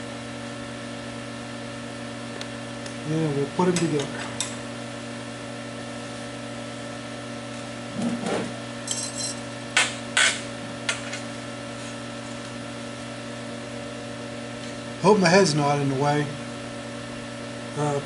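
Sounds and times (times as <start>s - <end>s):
steady electrical hum: 0.0s - 18.0s
metallic ring: 8.8s - 9.4s.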